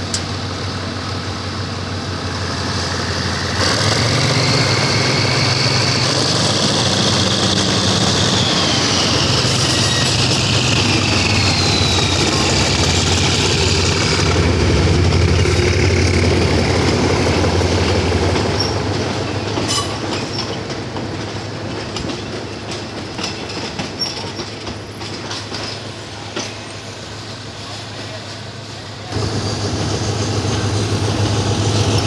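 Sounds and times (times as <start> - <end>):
high engine whine: 0.0 - 18.7, 29.1 - 32.0
diesel locomotive passing: 0.0 - 32.0
wheels clicking over rail joints: 12.2 - 26.8.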